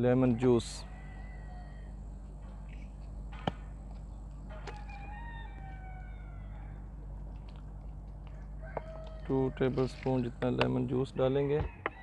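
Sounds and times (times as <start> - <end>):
steady low hum: 0.0 - 12.0
rooster crowing: 0.2 - 2.1, 4.5 - 7.0, 8.3 - 10.0, 11.3 - 12.0.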